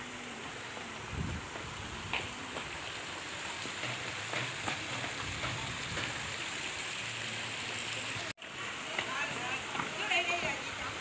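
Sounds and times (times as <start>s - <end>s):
water trickling in a channel: 0.0s - 11.0s.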